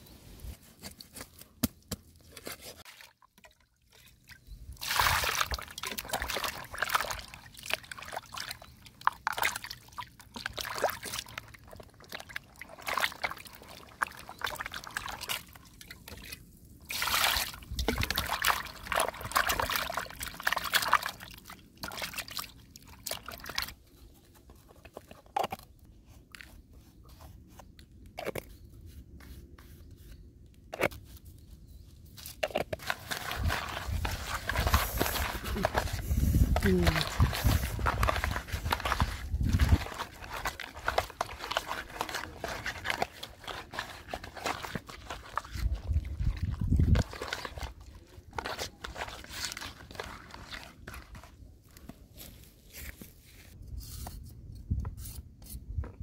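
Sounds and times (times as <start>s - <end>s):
water sloshing in a plastic basin: 2.7s - 25.6s, 32.4s - 52.4s.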